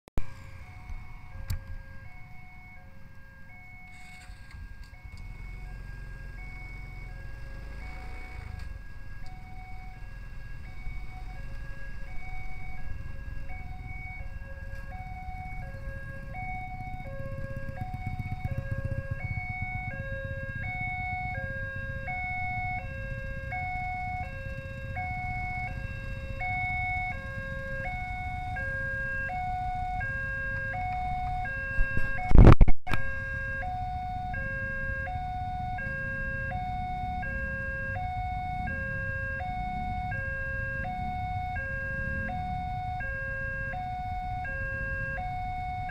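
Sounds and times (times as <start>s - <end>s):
motorcycles idling: 0.2s - 31.5s.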